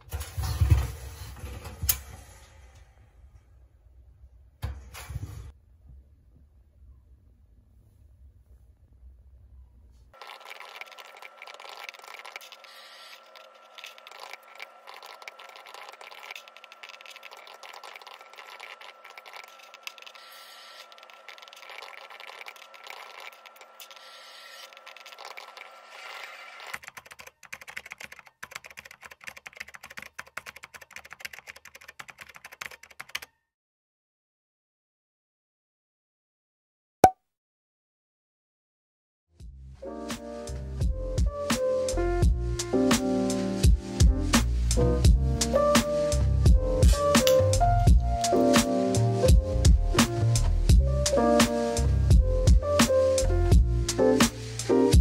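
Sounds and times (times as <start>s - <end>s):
laptop keyboard typing: 10.2s - 33.3s.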